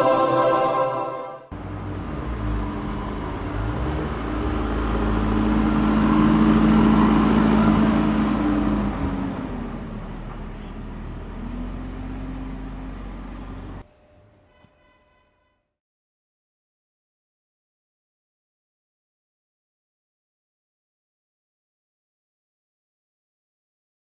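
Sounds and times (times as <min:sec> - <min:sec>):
diesel engine running: 0:01.5 - 0:13.8.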